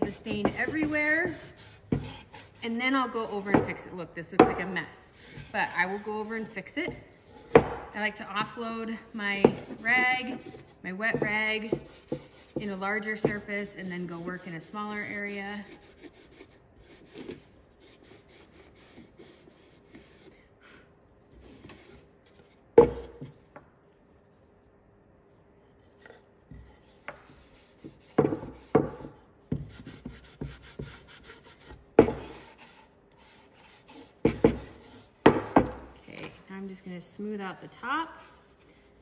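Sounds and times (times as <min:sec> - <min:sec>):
cloth rag rubbing wood: 0:29.7 - 0:39.0.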